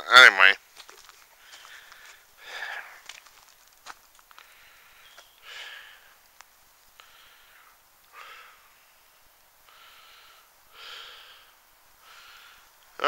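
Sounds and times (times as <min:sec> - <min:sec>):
man breathing: 0:01.3 - 0:03.1, 0:04.3 - 0:06.3, 0:06.9 - 0:13.0.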